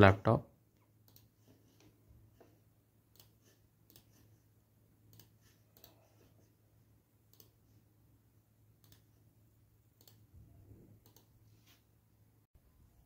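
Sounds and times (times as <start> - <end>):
computer mouse clicks: 1.0 - 2.0, 3.1 - 4.4, 5.1 - 6.5, 7.3 - 7.6, 8.8 - 9.2, 10.0 - 10.3, 11.0 - 11.4.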